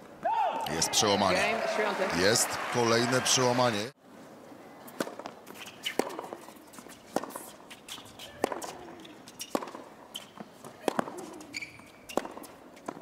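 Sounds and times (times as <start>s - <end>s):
tennis ball struck by rackets: 5.0s - 7.5s, 8.3s - 13.0s.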